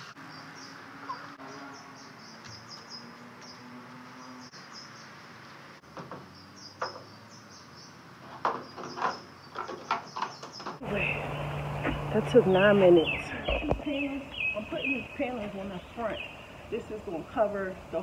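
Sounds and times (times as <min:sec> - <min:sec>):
low hum: 0:10.8 - 0:15.2.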